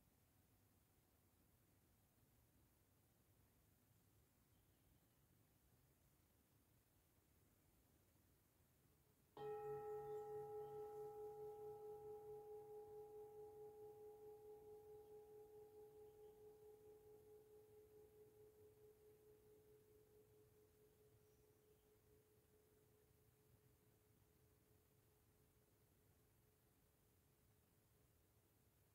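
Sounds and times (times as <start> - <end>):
metal singing bowl ringing: 9.4 - 19.6.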